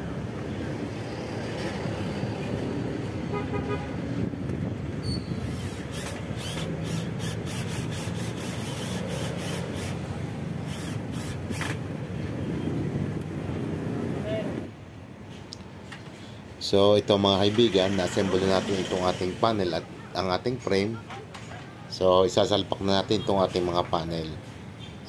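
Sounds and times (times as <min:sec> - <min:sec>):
street traffic: 0:00.0 - 0:25.0
vehicle horn toot: 0:03.3 - 0:03.9
cordless drill driving screws: 0:05.5 - 0:11.8.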